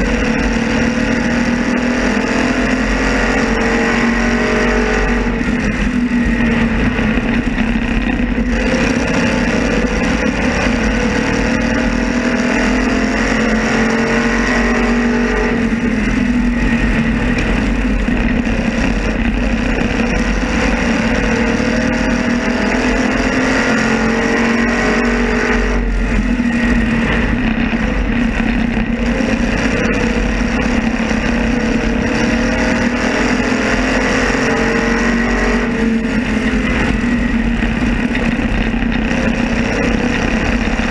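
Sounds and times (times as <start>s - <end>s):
race car engine revving: 0.0s - 40.9s.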